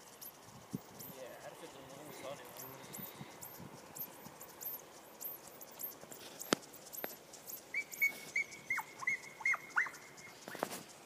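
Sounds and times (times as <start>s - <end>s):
faint high chirping: 0.0s - 11.0s.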